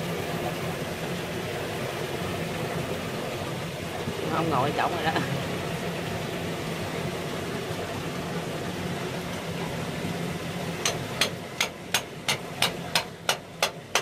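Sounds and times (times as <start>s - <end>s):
hammer knocking on chisel: 10.8s - 14.0s.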